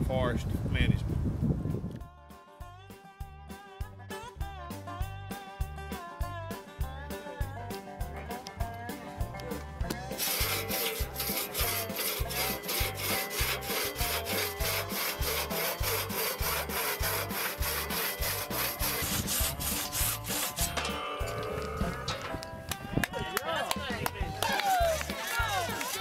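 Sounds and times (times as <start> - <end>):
crosscut saw rasping through timber: 10.1 - 21.0, 24.4 - 26.0.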